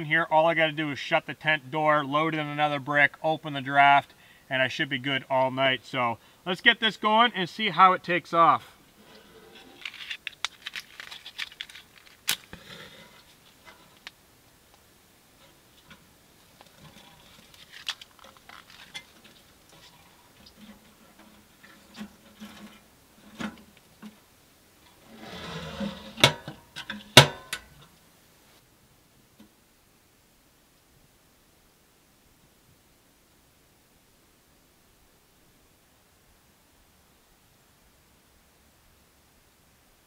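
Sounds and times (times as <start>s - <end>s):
matches and kindling clicking and scraping: 9.6s - 14.2s, 16.6s - 19.9s
metal stove door clacking shut: 27.2s - 27.7s.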